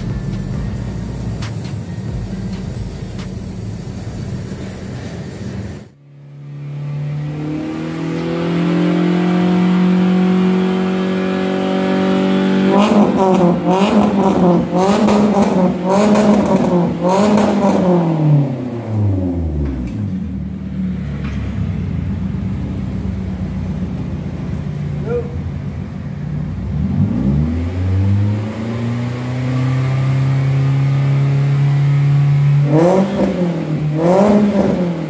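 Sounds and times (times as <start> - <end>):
car engine idling and revving: 0.0 - 35.0.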